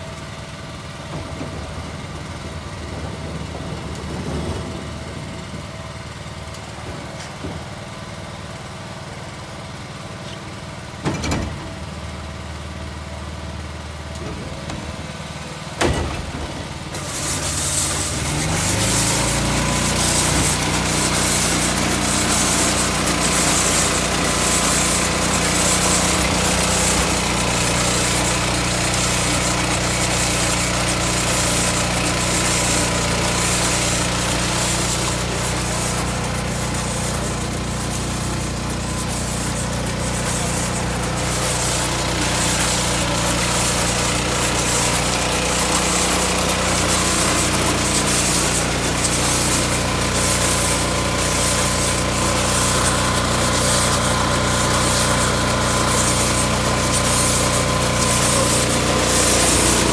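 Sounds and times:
machine drone: 0.0 - 9.4, 11.0 - 59.9
high-pressure water spray hiss: 15.2 - 59.9.

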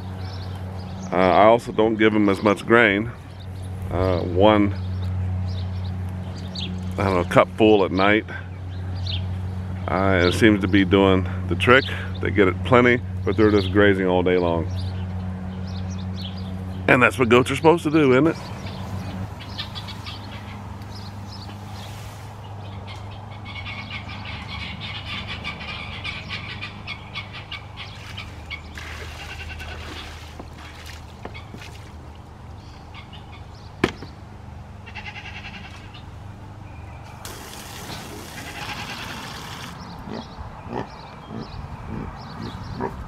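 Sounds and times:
water running from a hose into a pan: 37.2 - 39.8.

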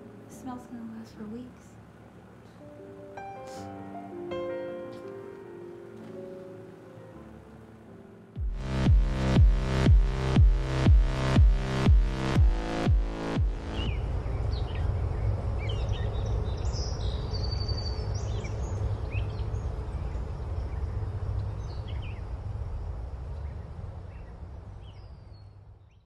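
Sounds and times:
steady low rumble: 8.3 - 26.0
birds chirping: 12.6 - 22.2.

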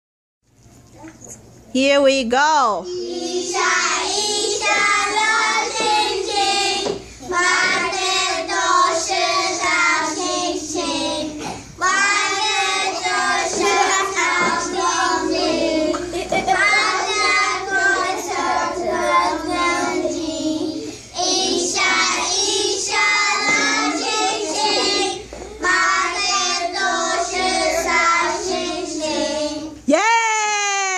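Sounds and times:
boys singing in unison: 2.9 - 29.8.

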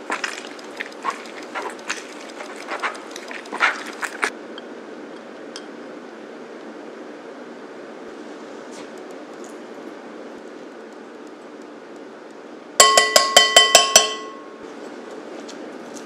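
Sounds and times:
lemon rind scraping on ceramic: 0.0 - 4.3.

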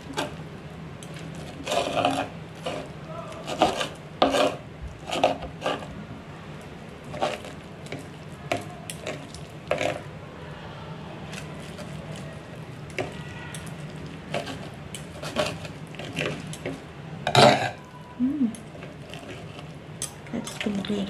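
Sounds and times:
low steady hum: 0.0 - 21.0
cutlery scraping on a tray: 1.5 - 5.9.

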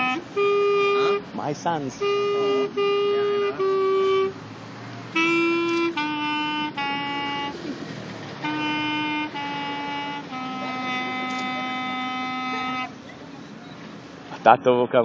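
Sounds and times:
solo clarinet slow notes: 0.0 - 1.2, 1.9 - 4.4, 5.1 - 13.0.

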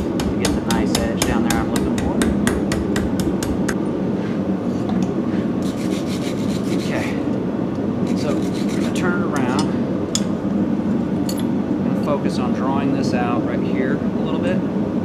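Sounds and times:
wire brush scrubbing steel: 5.6 - 7.2, 8.1 - 9.6.

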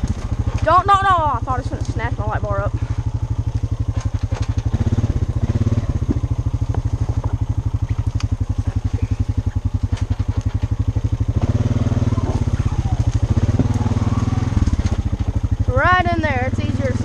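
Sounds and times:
atv engine running: 0.0 - 17.0
twigs snapping and scraping: 3.3 - 11.3, 12.2 - 15.6.

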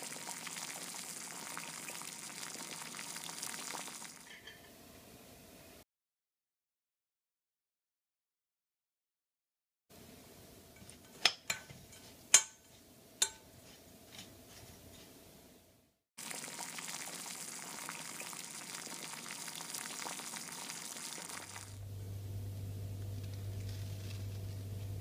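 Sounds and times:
low steady hum: 21.7 - 25.0.

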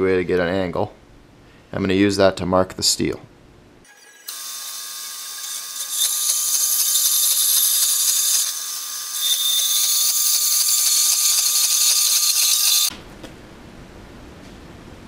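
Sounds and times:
band saw whine: 3.9 - 12.9
saw blade cutting metal: 3.9 - 12.9.

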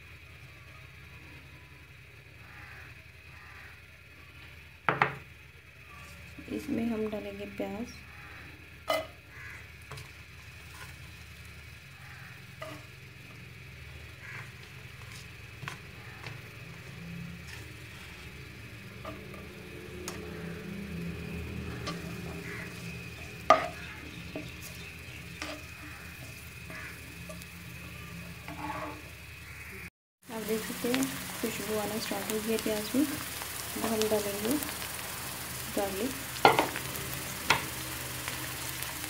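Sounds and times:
onions sizzling in oil: 0.0 - 39.0
spatula stirring and scraping: 9.9 - 11.3, 12.5 - 13.0, 14.2 - 20.8, 21.4 - 29.2
spatula knocking on pan: 21.8 - 24.8, 36.4 - 36.8.

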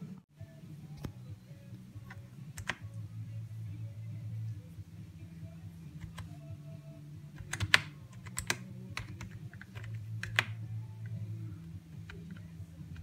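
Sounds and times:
steady low hum: 0.0 - 13.0
keyboard keys clicking: 2.0 - 2.8, 6.0 - 6.3, 7.4 - 10.6.

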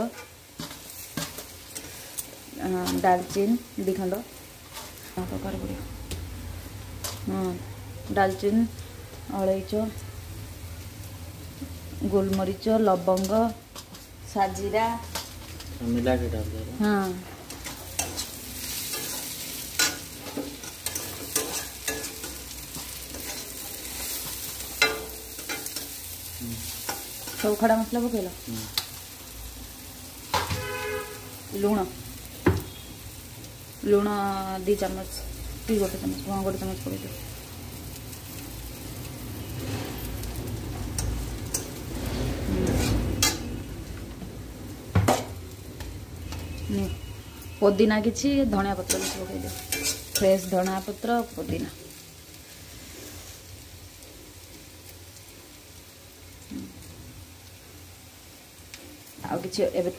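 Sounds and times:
water boiling in a pot: 30.6 - 37.7.

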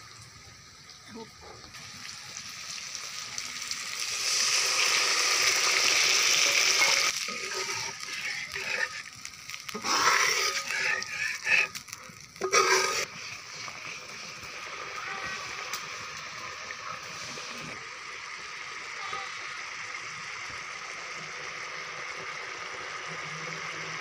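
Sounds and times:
curry sizzling in a wok: 0.0 - 24.0
metal spatula scraping wok: 6.4 - 9.1, 9.7 - 15.4.

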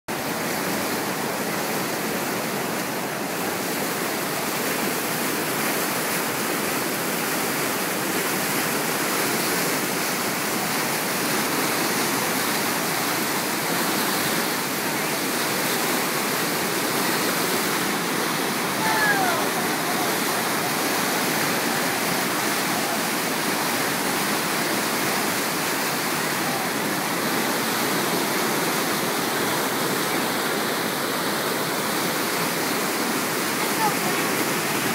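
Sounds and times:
floodwater rushing: 0.1 - 34.9.

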